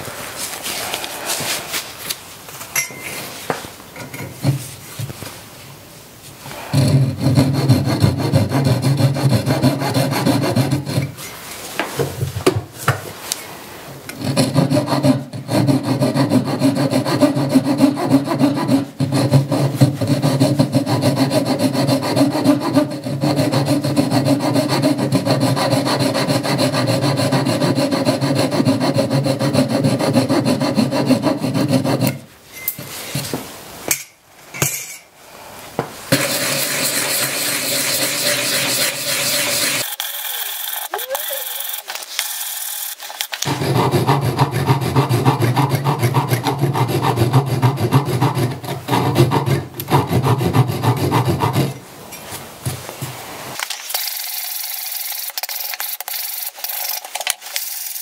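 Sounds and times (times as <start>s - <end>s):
saw scraping strokes on wood: 6.6s - 11.3s, 14.2s - 32.2s, 36.1s - 51.8s.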